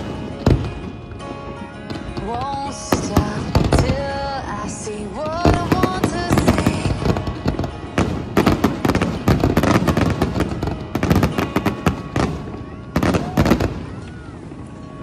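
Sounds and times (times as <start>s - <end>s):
fireworks bangs and crackling: 0.0s - 15.0s
song with singing voice: 2.2s - 7.5s.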